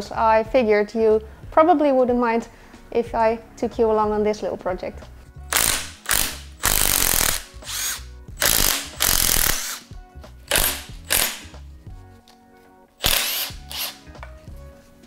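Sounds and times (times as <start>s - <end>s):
quiet background music: 0.0s - 15.0s
ratchet spinning bolts: 5.5s - 9.8s, 10.5s - 11.5s, 13.0s - 14.0s.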